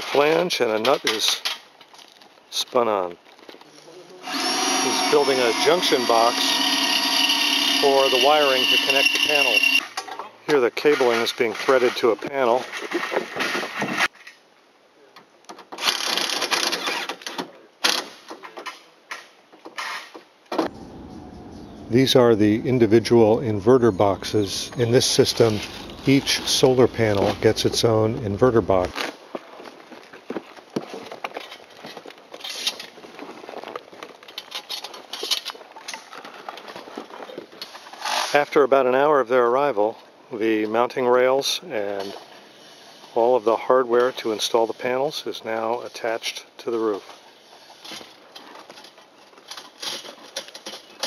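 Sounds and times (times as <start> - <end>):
scraping noise: 20.7 - 28.9.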